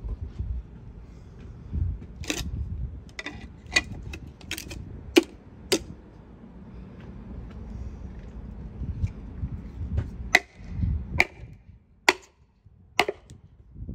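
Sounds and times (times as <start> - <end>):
wooden wedges clacking: 2.2 - 2.4, 3.1 - 5.9, 10.4 - 10.6, 11.2 - 11.5, 12.1 - 12.4, 13.0 - 13.3.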